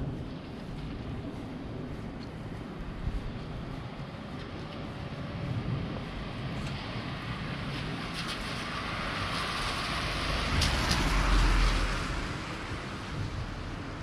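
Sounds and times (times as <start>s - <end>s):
vehicle passing by: 8.2s - 13.6s.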